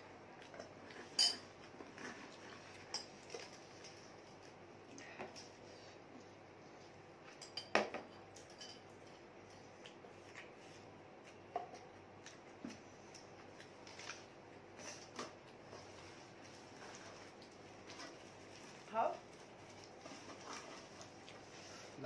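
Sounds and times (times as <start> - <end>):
spoon clinking on glass bowl: 7.4 - 8.8.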